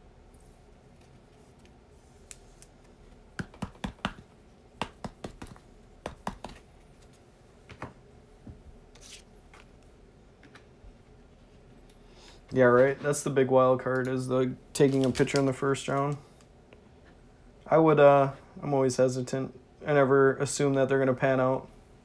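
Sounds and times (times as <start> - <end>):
trading cards clicking and snapping: 2.2 - 6.6
cards swishing: 8.9 - 9.8.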